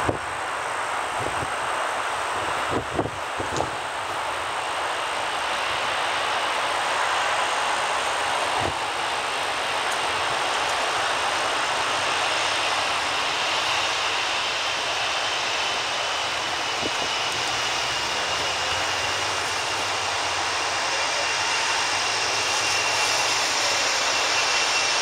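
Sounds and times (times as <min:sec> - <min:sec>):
jet engine roar with whine: 0:00.0 - 0:25.0.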